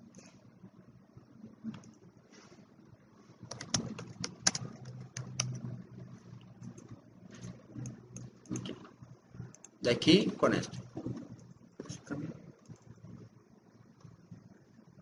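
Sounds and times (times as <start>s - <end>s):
computer keyboard typing: 3.4s - 5.8s, 6.6s - 9.8s, 12.6s - 13.1s.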